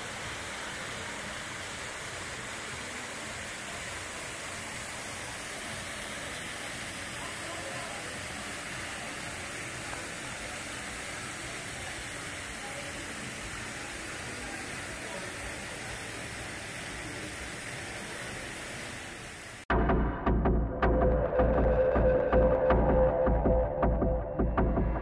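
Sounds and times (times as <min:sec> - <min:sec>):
water spilling down cascade: 0:00.0 - 0:19.7.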